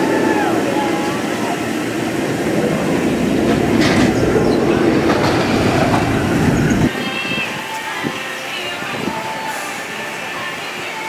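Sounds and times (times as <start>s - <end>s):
drop-tower ride rumbling: 0.0s - 7.0s.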